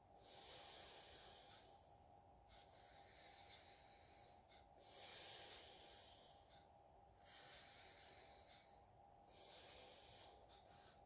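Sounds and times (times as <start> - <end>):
nasal breathing: 0.1 - 11.0.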